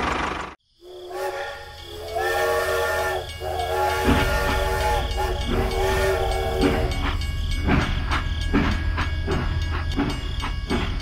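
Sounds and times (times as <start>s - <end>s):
small engine running: 0.0s - 0.6s
toy steam whistle blasts: 0.8s - 7.3s.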